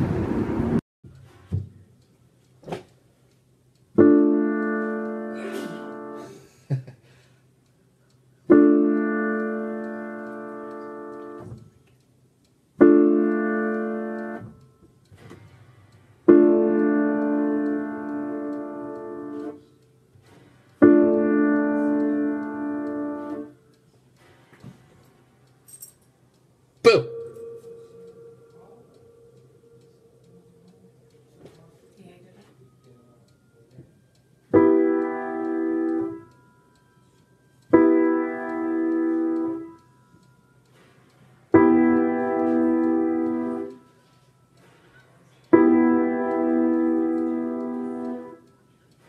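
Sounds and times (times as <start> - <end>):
keyboard playing slow chords: 4.0 - 6.9, 8.4 - 11.7, 12.8 - 19.8, 20.7 - 25.9, 26.5 - 40.8, 41.4 - 49.0.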